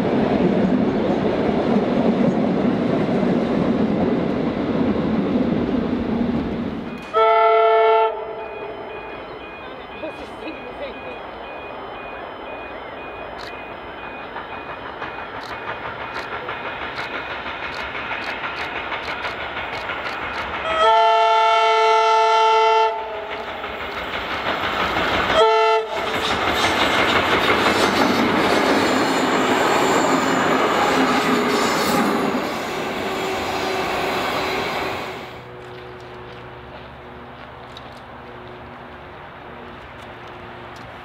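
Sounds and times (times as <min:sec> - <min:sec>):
train horn blast: 0:07.1 - 0:08.9, 0:20.7 - 0:23.4, 0:25.4 - 0:26.1
rush of wheels on rail: 0:08.1 - 0:41.0
train wheels clicking over rail joints: 0:12.5 - 0:21.3, 0:22.9 - 0:41.0.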